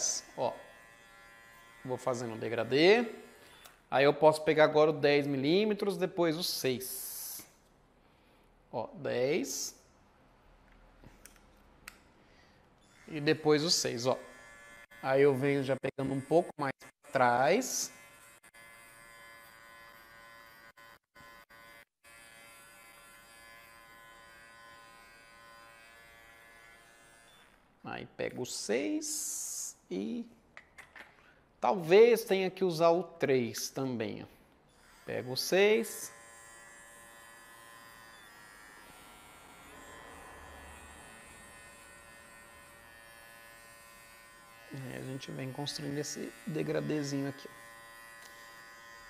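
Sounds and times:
electric pet clipper buzzing: 0.0 - 3.8, 12.9 - 27.6, 34.7 - 49.0.

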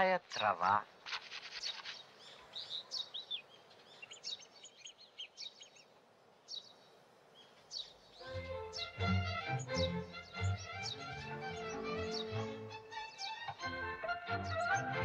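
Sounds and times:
faint hiss: 0.0 - 9.1
birds chirping: 0.0 - 15.0
music: 8.2 - 15.0.

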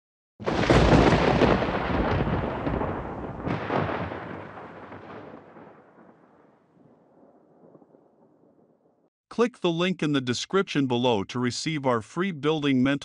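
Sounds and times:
thunder-like boom and rumble: 0.4 - 8.8.

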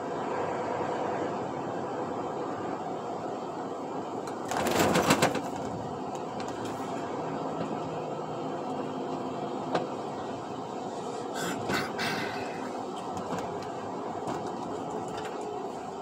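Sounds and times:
road and engine noise in truck cab: 0.0 - 16.0
loud clatter: 4.4 - 5.8.

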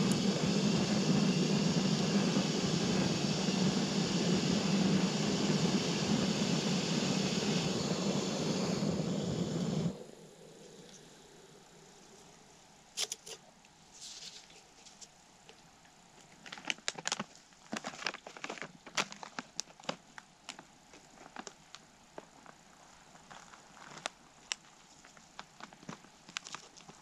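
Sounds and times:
foil pouch crinkling: 16.2 - 27.0.

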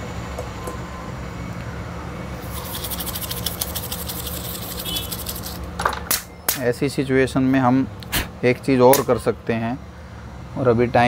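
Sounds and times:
fast dry scratching: 2.4 - 5.7.

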